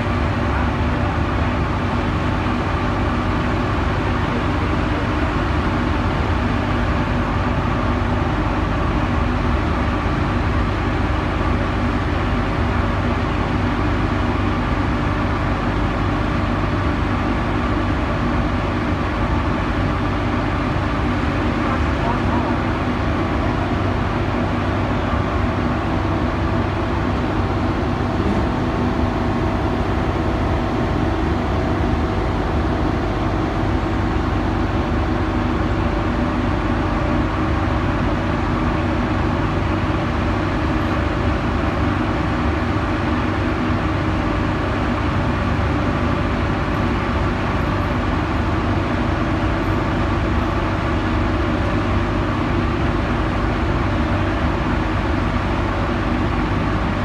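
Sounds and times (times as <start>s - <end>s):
constant hum tones: 0.0s - 57.0s
hoist machinery droning: 21.2s - 35.8s.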